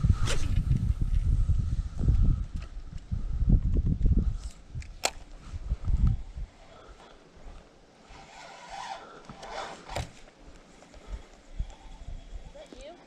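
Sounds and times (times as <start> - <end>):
raspy scraping: 5.2 - 13.0.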